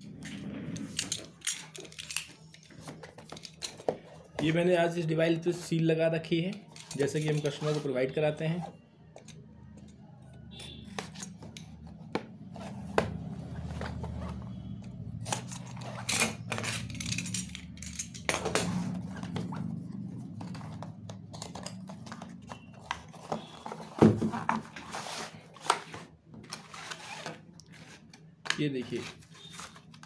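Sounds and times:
cardboard scraping and tearing: 0:23.4 - 0:28.1.

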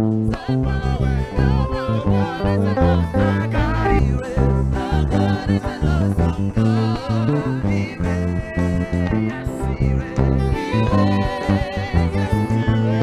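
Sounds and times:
bass line: 0:00.0 - 0:13.0
person singing: 0:00.0 - 0:13.0.

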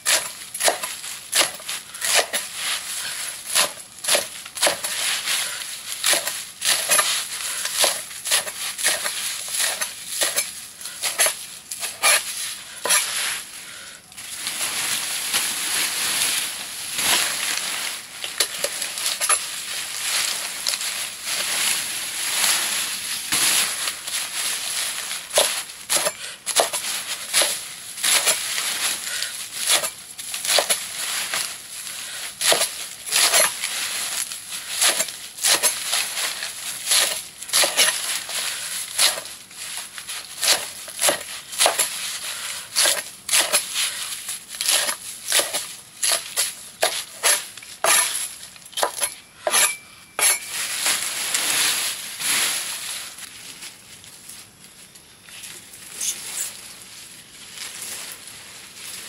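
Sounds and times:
leafy plants crunching and snapping: 0:00.0 - 0:49.1, 0:50.5 - 0:59.0.

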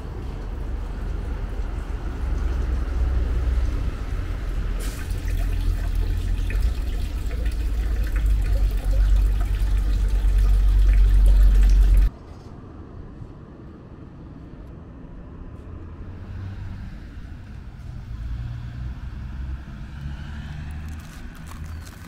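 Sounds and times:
deep rumble: 0:00.0 - 0:12.1
hissing water layer: 0:04.6 - 0:12.1
rushing splashing water: 0:04.8 - 0:12.1.

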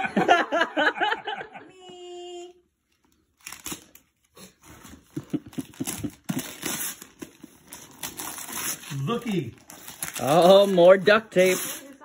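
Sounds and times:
wrapping paper crinkling: 0:03.1 - 0:12.0.

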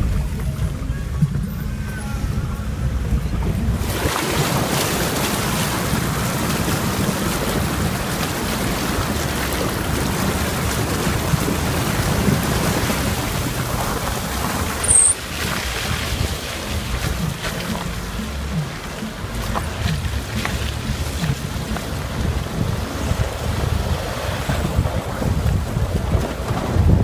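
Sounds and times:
car engine running: 0:00.0 - 0:27.0
water splashing against car: 0:00.0 - 0:27.0
wind on microphone: 0:00.0 - 0:27.0
brief high squeak: 0:14.8 - 0:15.2.

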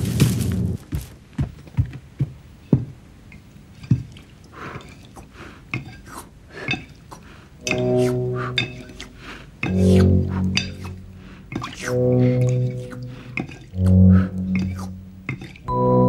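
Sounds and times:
spoon tapping a plate: 0:14.6 - 0:15.6.

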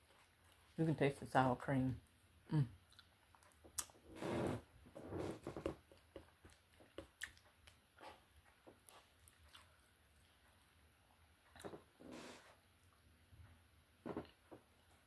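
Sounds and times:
person chewing wetly: 0:02.8 - 0:04.0, 0:05.6 - 0:11.8.

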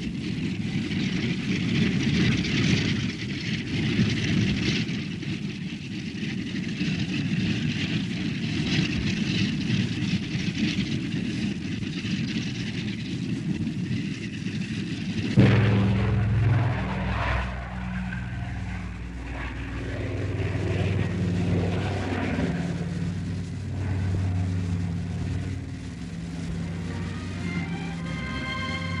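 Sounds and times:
propeller airliner engines droning: 0:00.0 - 0:29.0.

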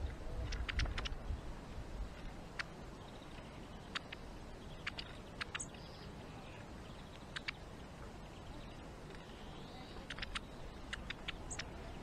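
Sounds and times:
birds pecking on wooden feeder: 0:00.0 - 0:01.2, 0:02.1 - 0:05.7, 0:09.9 - 0:12.0
faint steady hiss: 0:00.0 - 0:12.0.

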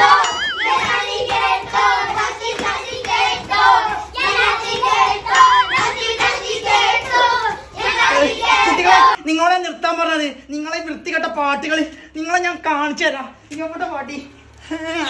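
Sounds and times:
steady held tone: 0:00.0 - 0:01.4, 0:05.3 - 0:06.2
children singing: 0:00.0 - 0:09.2.

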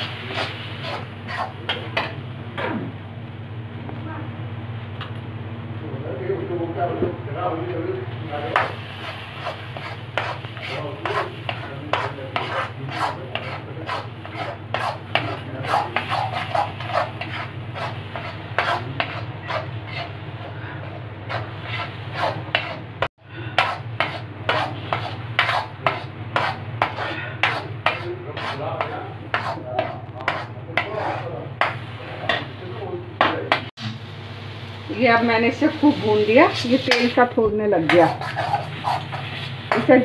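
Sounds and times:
spatula scraping metal pan: 0:00.0 - 0:02.2, 0:08.5 - 0:32.5, 0:35.8 - 0:40.0
low cooktop hum: 0:00.0 - 0:40.0.

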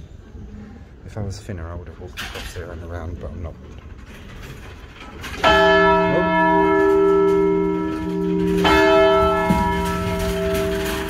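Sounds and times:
church bell striking: 0:05.4 - 0:11.0.

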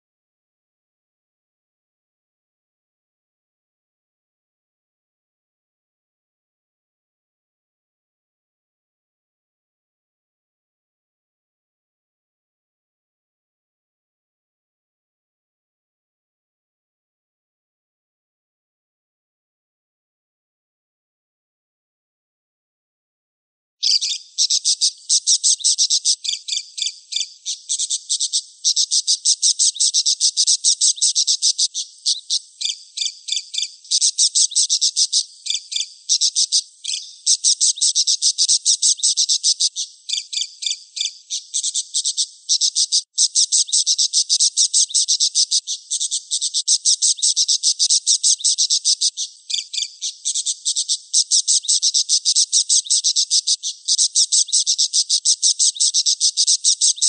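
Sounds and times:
budgerigar chirping: 0:23.8 - 0:57.0.

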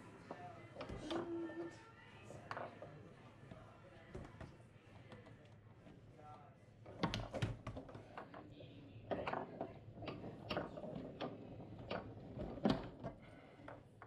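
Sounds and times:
foosball ball clacks and knocks: 0:06.9 - 0:14.0.

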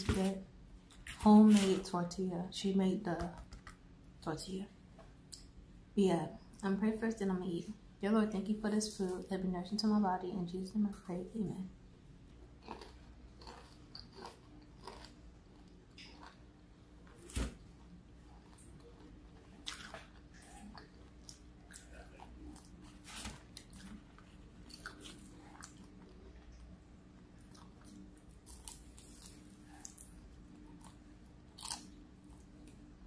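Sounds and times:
crunching and chewing food: 0:12.1 - 0:33.0.

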